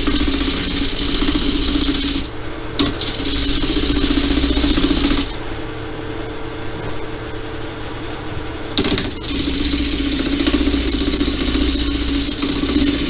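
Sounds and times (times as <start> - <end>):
lathe motor hum: 0.0 - 5.5, 8.8 - 13.0.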